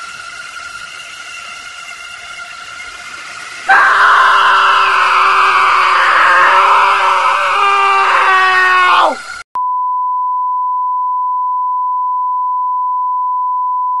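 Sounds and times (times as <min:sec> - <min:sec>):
loud wailing scream: 0:02.6 - 0:09.4.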